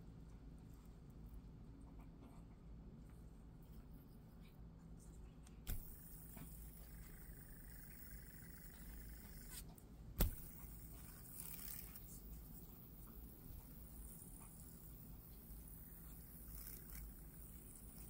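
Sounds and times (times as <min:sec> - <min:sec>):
metallic clicks of bead spinner: 0:10.2 - 0:12.2.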